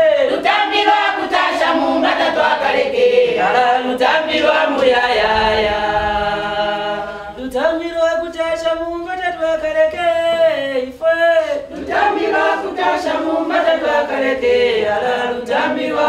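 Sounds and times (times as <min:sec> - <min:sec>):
women singing in chorus: 0:00.0 - 0:07.6, 0:11.6 - 0:16.0.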